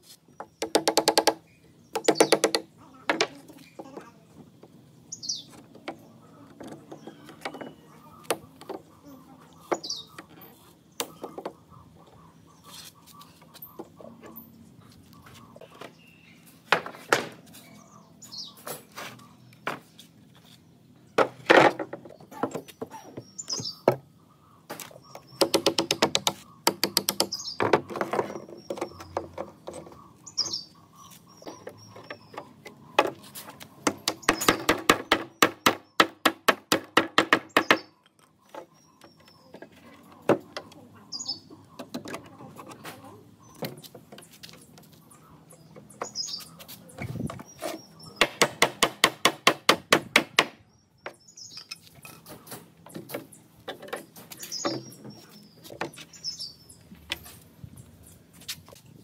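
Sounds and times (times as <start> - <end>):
birds chirping: 0.0 - 59.0.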